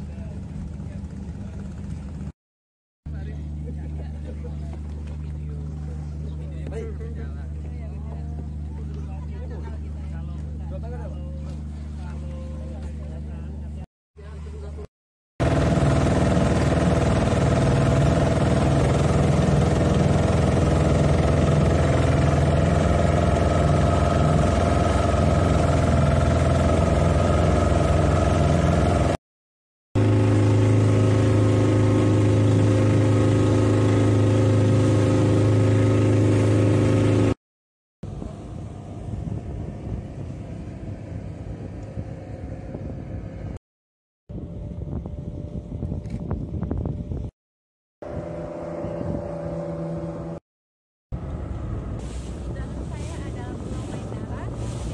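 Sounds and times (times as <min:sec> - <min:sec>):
speedboat engine droning: 0:03.1 - 0:29.2, 0:30.0 - 0:37.4, 0:38.0 - 0:43.6, 0:48.0 - 0:50.4, 0:51.2 - 0:54.9
rushing water: 0:52.0 - 0:54.9.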